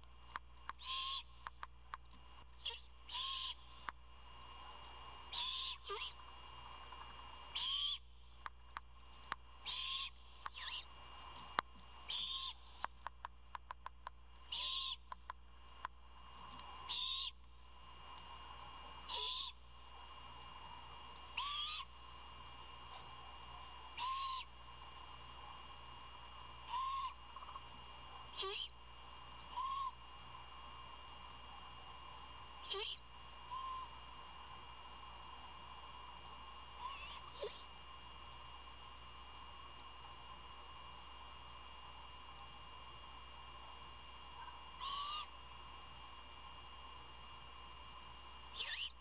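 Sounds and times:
sharp ticks: 0.3s - 2.2s, 12.8s - 14.2s, 15.0s - 16.0s
owlet raspy begging screech: 0.8s - 1.3s, 5.3s - 6.2s, 7.6s - 8.0s, 9.6s - 10.9s, 14.5s - 15.0s, 19.1s - 19.6s, 21.4s - 21.9s, 24.0s - 24.5s, 26.7s - 27.2s, 29.5s - 30.0s, 36.8s - 37.7s, 44.8s - 45.3s, 48.6s - 49.0s
owlet begging screech: 9.7s - 10.9s, 21.4s - 21.9s, 24.0s - 24.5s, 26.7s - 27.2s, 44.8s - 45.3s, 48.5s - 49.0s.

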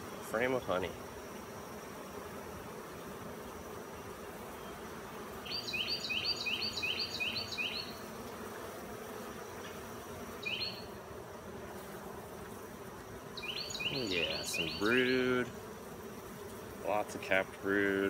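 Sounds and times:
honey bees buzzing: 0.0s - 18.0s
high chirps: 13.4s - 15.2s.

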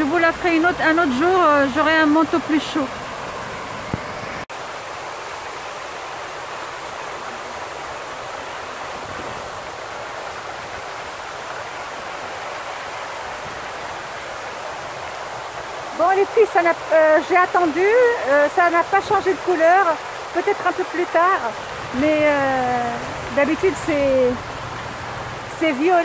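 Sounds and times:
fountain jets splashing into basin: 13.9s - 26.0s.

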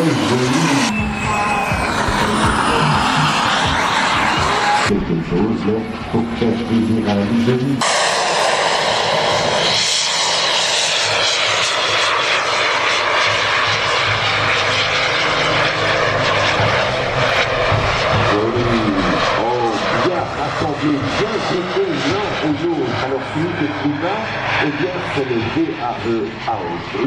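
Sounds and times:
jet turbine engines whining: 0.0s - 27.0s
music: 0.9s - 4.9s.

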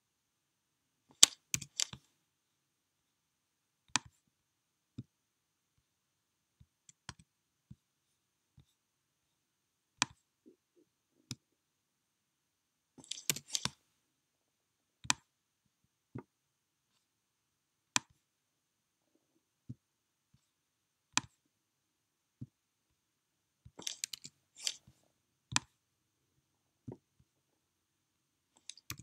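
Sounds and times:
computer mouse clicks: 1.2s - 2.0s, 13.0s - 13.8s, 23.8s - 24.9s, 28.6s - 29.0s.

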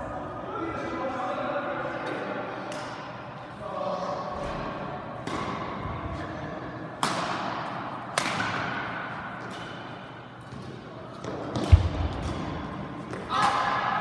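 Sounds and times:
badminton racket hitting shuttlecock: 7.0s - 9.9s.

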